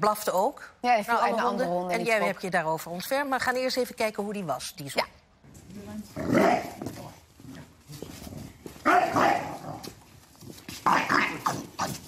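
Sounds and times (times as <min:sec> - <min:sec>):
dog barking: 0:08.9 - 0:09.6.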